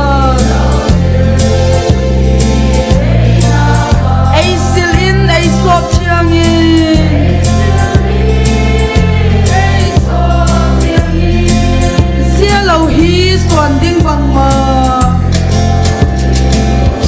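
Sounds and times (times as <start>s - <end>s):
congregation singing a hymn: 0.0s - 13.5s
instrumental accompaniment with bass: 0.0s - 17.0s.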